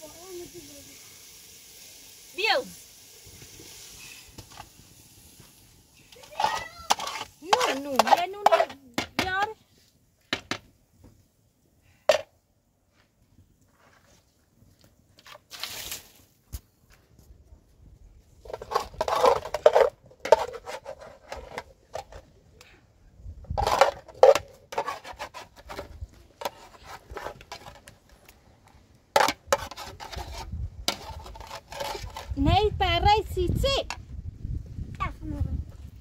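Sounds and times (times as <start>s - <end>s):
metal ladle scraping a pot: 6.3s - 8.8s, 18.5s - 22.2s, 23.6s - 27.9s, 29.2s - 32.4s.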